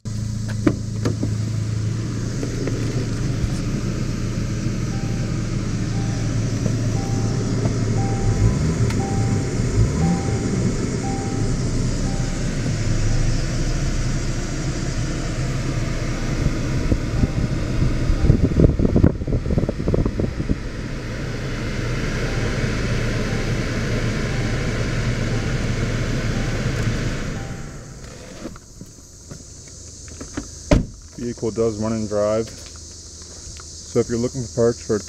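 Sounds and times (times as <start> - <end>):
car engine running steadily: 0.0 - 35.0
ventilation fan blowing: 1.5 - 28.1.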